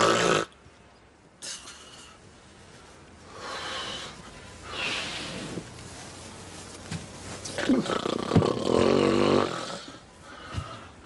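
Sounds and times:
loud snort: 0.0s - 0.5s.

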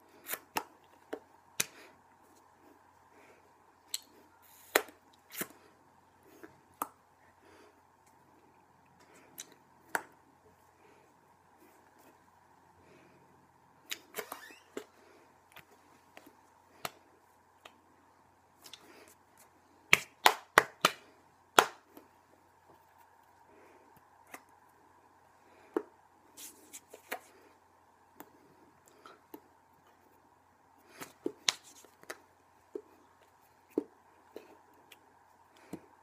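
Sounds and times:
faint steady hum: 0.0s - 36.0s
hands clapping and slapping: 19.9s - 22.0s, 31.0s - 32.2s.

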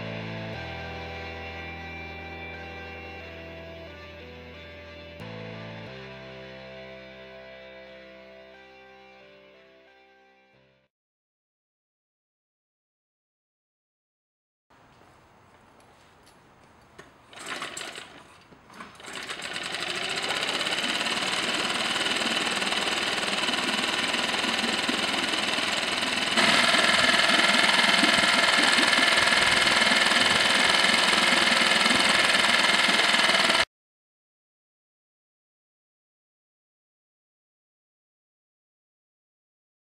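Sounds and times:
recoil starter pulls: 17.0s - 33.6s
outboard motor running: 19.0s - 33.7s.

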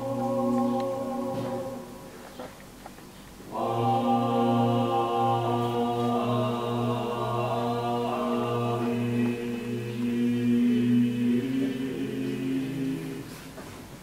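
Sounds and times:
low pulsing note: 0.0s - 2.2s
chant-like held tones: 0.0s - 2.4s, 3.4s - 13.5s.

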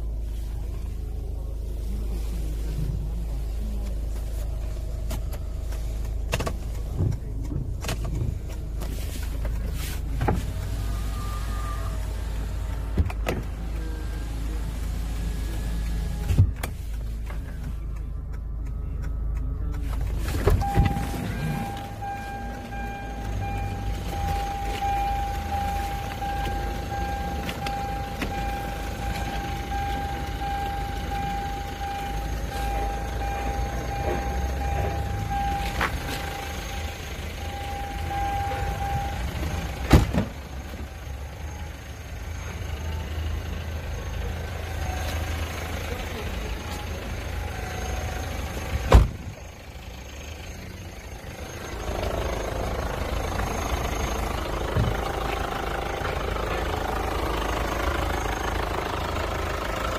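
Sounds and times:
car engine idling: 0.0s - 59.9s
steady high tone: 40.8s - 59.9s.

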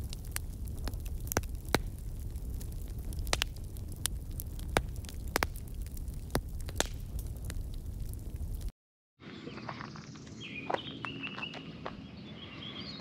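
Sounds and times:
wood fire crackling and popping: 0.0s - 8.7s.

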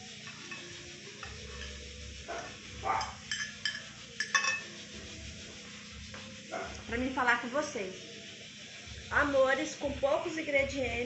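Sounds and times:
metal utensil clinking on glass plate: 0.2s - 1.8s, 2.9s - 4.8s.

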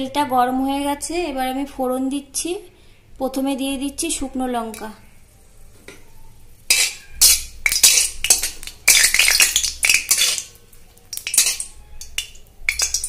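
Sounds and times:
oil sizzling: 6.3s - 13.0s
spatula scraping metal wok: 6.7s - 10.5s, 11.2s - 13.0s.

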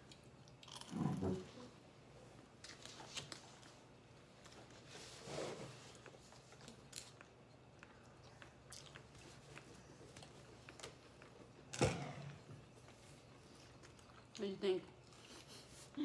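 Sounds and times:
person eating with crunches: 0.0s - 1.6s, 5.9s - 11.7s, 12.6s - 14.4s.

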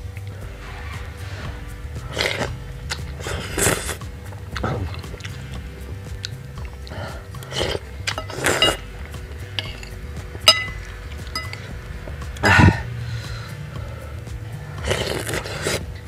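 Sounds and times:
noisy slurps: 0.0s - 16.0s
cutlery clinking on glass bowl: 9.6s - 11.6s.

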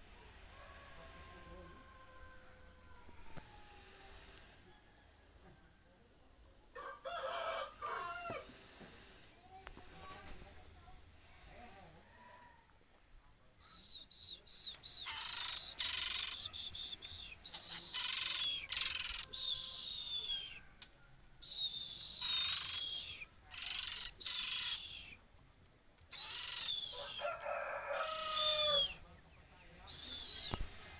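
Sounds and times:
bird singing scratchy phrases: 13.6s - 20.6s, 21.4s - 25.2s, 26.1s - 27.2s.

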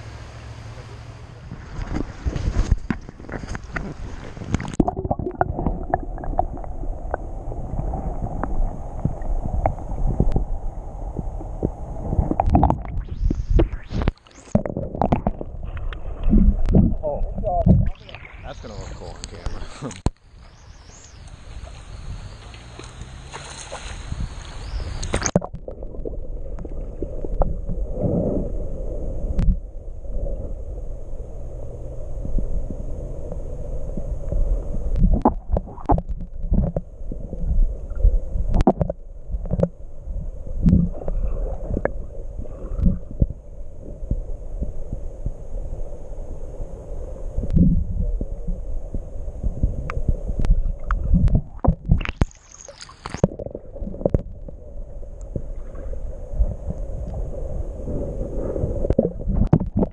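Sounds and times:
muffled underwater creek rumble: 0.0s - 59.9s
underwater knocks and clicks: 1.8s - 7.2s, 11.5s - 18.0s, 25.0s - 27.8s, 29.4s - 29.6s, 34.9s - 39.8s, 40.6s - 42.0s, 42.7s - 43.4s, 49.8s - 54.6s, 58.8s - 59.9s
water splashing hiss: 20.8s - 25.3s.

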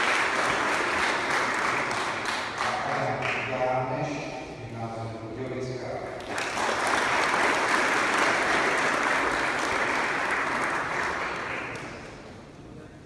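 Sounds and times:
audience applauding: 0.0s - 3.5s, 6.2s - 12.3s.

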